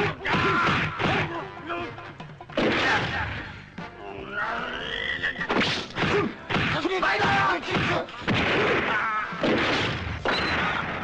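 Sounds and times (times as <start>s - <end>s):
punches and thwacks: 0.2s - 1.3s, 2.5s - 3.3s, 5.5s - 11.0s.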